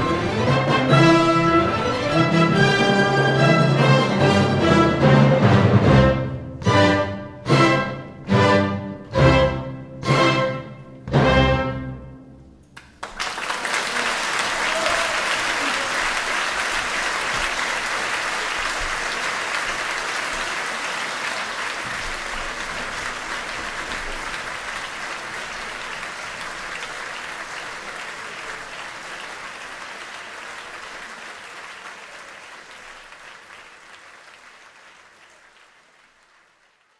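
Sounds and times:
audience applauding: 12.8s - 36.9s.

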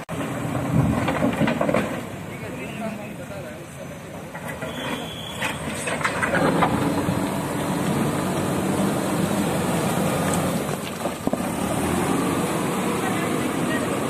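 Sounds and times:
diesel engine running: 5.4s - 14.0s.

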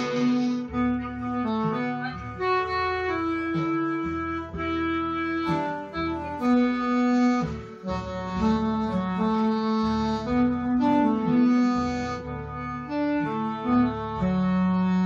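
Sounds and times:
slow ballad music: 0.0s - 15.0s.

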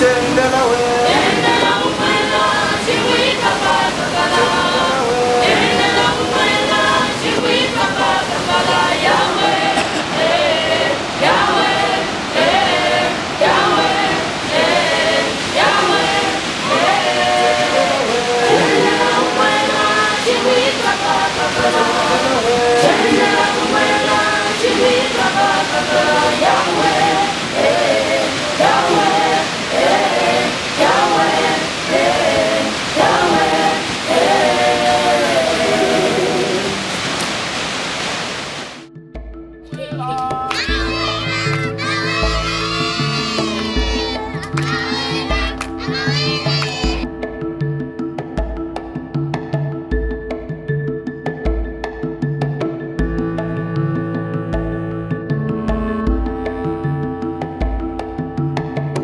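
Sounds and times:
choir singing: 0.0s - 37.8s, 40.6s - 47.1s
steady rushing hiss: 0.0s - 38.9s.

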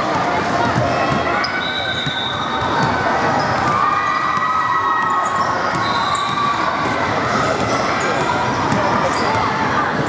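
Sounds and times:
spectators shouting and cheering: 0.0s - 10.0s
basketball bouncing on hardwood: 5.7s - 9.6s.

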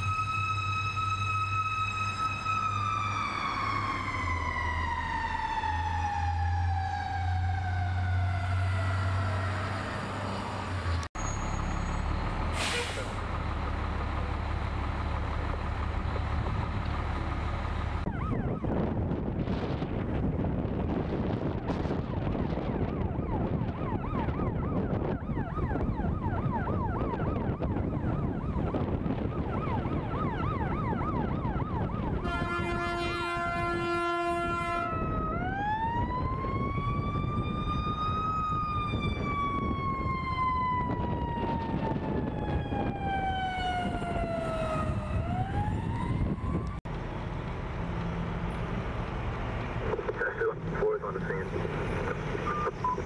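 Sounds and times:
ambulance siren: 0.0s - 11.0s, 18.0s - 19.3s, 21.2s - 46.8s
traffic noise: 0.0s - 53.0s
wind noise: 18.0s - 46.8s.

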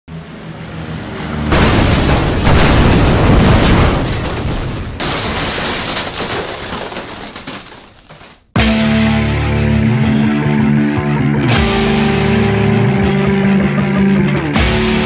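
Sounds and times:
explosion with breaking debris: 1.5s - 8.5s
rock music: 8.6s - 15.0s.

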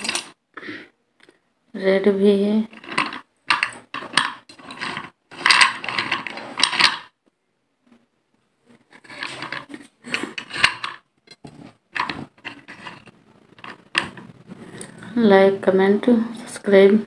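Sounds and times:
slate pencils clicking and crunching: 0.0s - 0.4s, 2.7s - 7.2s, 8.8s - 15.0s.

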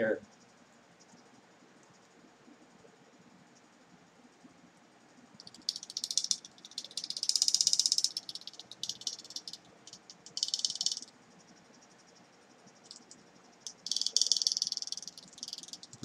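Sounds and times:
cooling fan rattling: 5.3s - 11.2s, 12.7s - 16.0s.

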